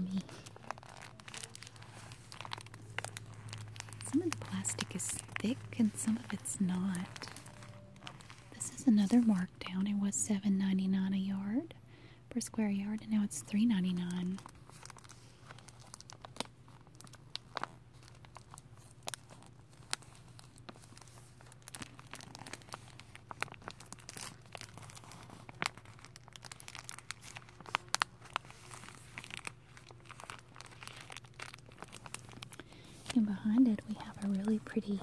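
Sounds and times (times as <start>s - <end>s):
plastic sheeting crinkling: 0.0s - 9.8s, 13.4s - 35.0s
low hum: 0.0s - 11.9s.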